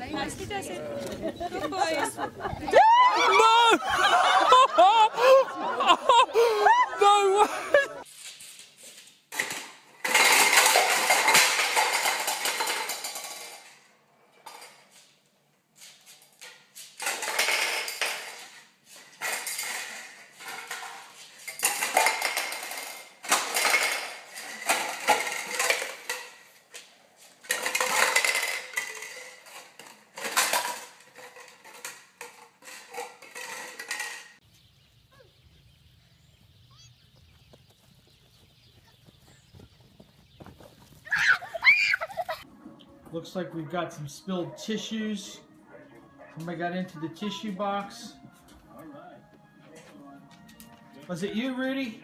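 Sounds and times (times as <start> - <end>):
plastic cups clattering: 9.3 - 14.9, 16.4 - 34.4.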